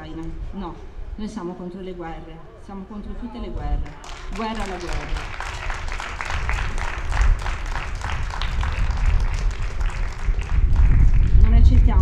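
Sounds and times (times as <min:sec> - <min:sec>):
crowd applauding: 0:03.8 - 0:11.9.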